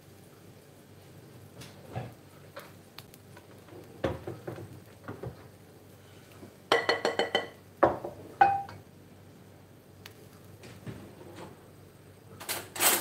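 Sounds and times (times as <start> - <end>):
glass bowl clinking: 6.7 - 8.8.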